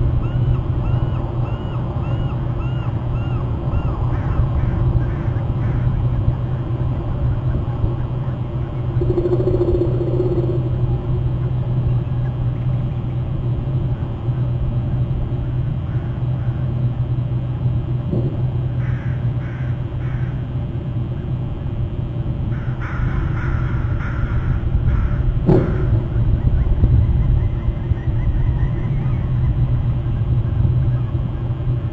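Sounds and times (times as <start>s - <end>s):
steady low rumble: 0.0s - 31.9s
crows cawing: 2.8s - 6.2s, 18.8s - 20.5s, 22.5s - 26.2s.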